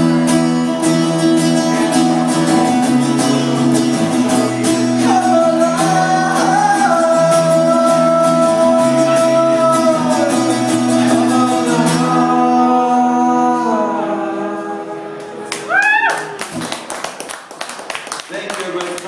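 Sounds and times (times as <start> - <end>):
man singing: 0.0 - 15.2
strummed acoustic guitar: 0.0 - 15.5.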